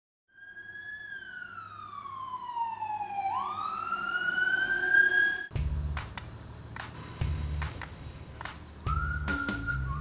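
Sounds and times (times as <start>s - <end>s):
fire engine siren wailing: 0.3s - 5.5s.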